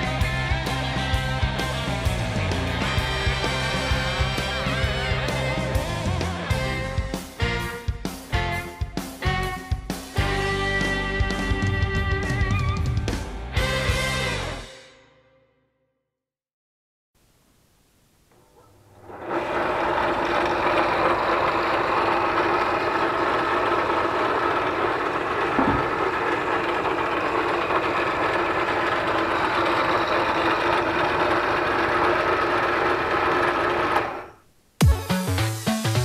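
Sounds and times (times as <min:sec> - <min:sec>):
bench drill motor humming: 0:18.3 - 0:34.4
short knock: 0:25.6 - 0:25.9.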